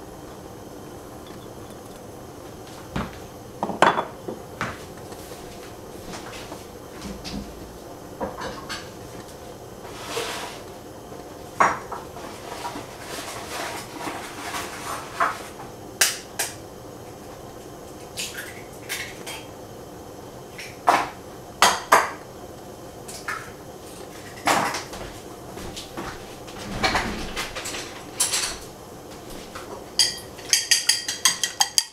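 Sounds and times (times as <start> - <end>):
dishes and utensils clinking: 30.0 - 31.9.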